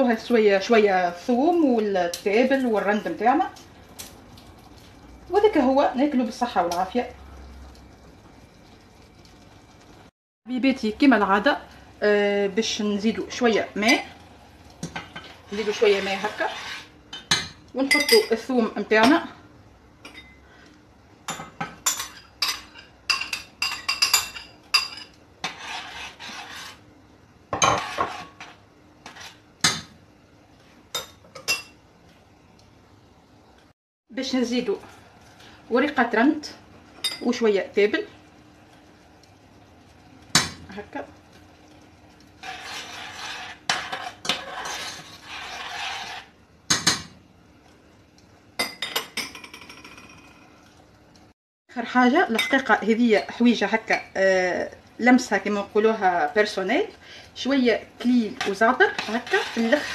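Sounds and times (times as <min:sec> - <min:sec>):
metal spoon scraping saucepan: 0:15.0 - 0:17.0, 0:24.2 - 0:26.8, 0:27.6 - 0:29.4, 0:42.4 - 0:46.3, 0:58.3 - 0:59.9.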